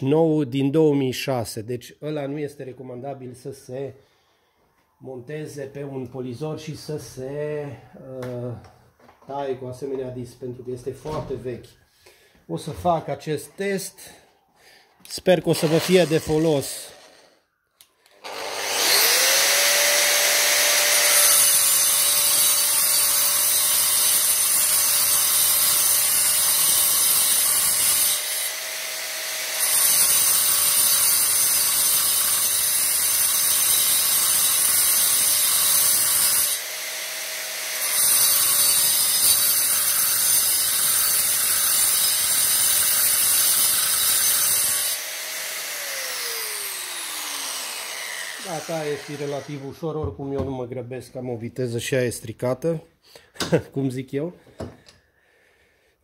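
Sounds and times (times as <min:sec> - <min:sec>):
grinder disc cutting steel: 0:15.5 - 0:17.4, 0:18.2 - 0:49.9
angle grinder motor whine: 0:18.1 - 0:21.4, 0:43.8 - 0:49.7.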